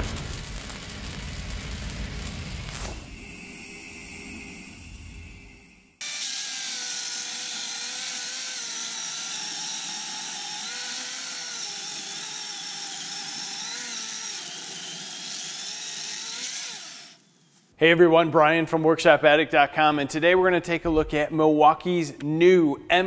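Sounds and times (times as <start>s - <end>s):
electric chainsaw whine: 0.0s - 17.7s.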